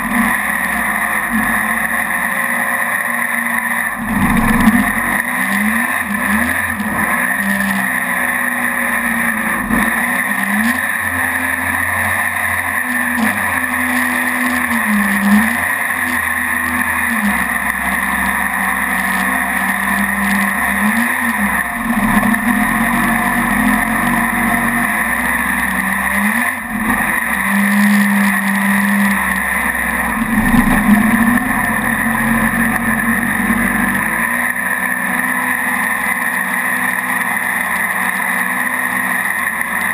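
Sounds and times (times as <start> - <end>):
boat engine revving: 0.0 - 39.9.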